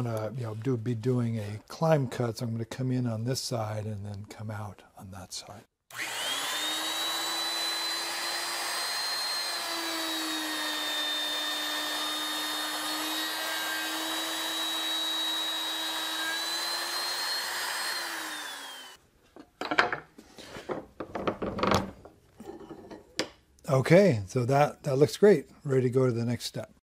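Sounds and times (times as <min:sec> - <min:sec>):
router spinning down: 0:05.9 - 0:19.0
router whining: 0:05.9 - 0:19.0.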